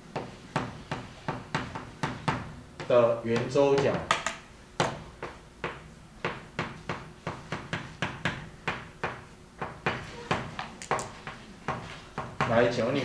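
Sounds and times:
chalk writing on a blackboard: 5.2 - 12.6.

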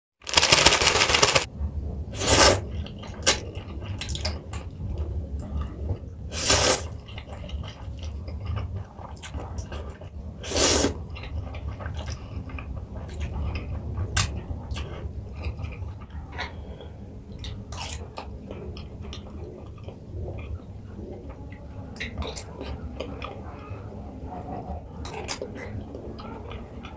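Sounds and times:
plastic packet rustling: 0.2 - 1.5
loud noodle slurps: 2.2 - 2.6, 6.3 - 6.9, 10.4 - 11.0
chewing: 6.9 - 10.1, 11.0 - 23.7.

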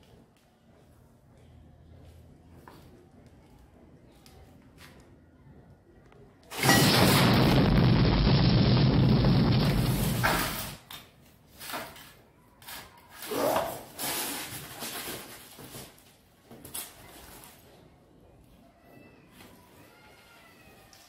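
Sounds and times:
loud electrical blast crackling: 6.5 - 10.8.

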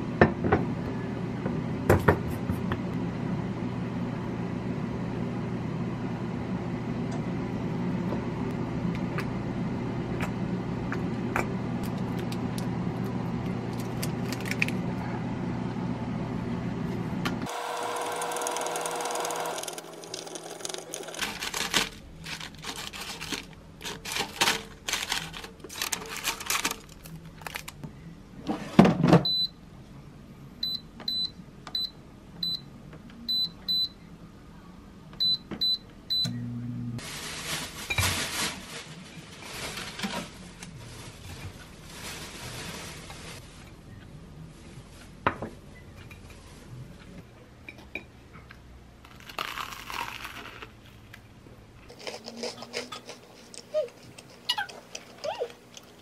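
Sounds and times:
appliance hum: 0.0 - 56.0.

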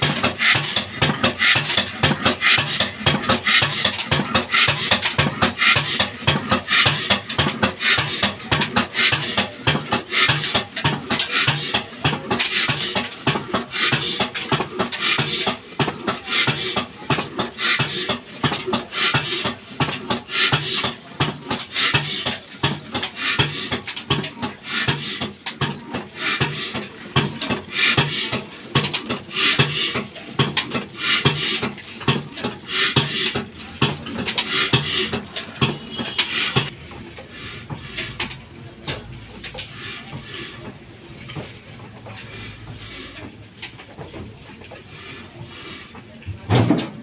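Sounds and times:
diesel engine clattering: 0.0 - 47.0.

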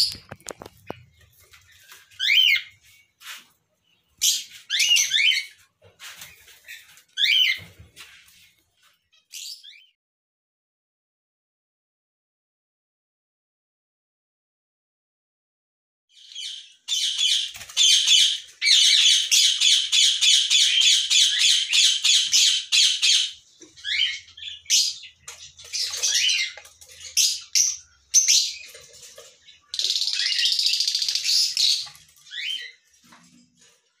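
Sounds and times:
lovebirds squawking: 16.4 - 28.8.

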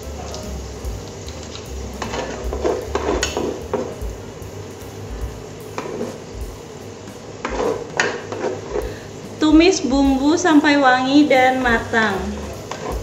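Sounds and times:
frying sizzle: 0.0 - 13.0
spoon scraping and knocking pot: 7.4 - 8.9, 12.5 - 13.0.

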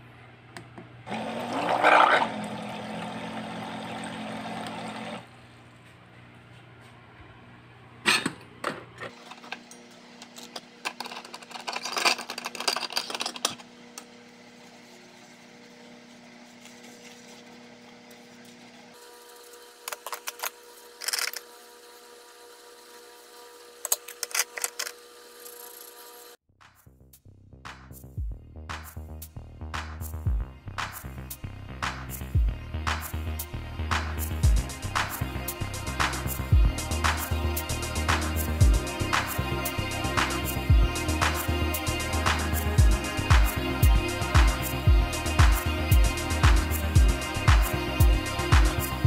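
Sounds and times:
water pump whirring: 1.0 - 5.4.

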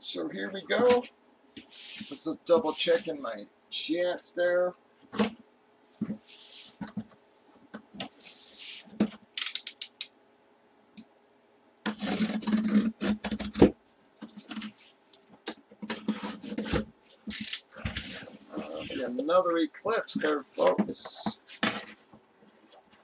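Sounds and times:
cardboard scraping and rubbing: 0.7 - 3.1, 6.0 - 7.1, 11.9 - 14.9, 15.8 - 19.2, 20.2 - 23.0
blade slitting packing tape: 11.9 - 13.4.

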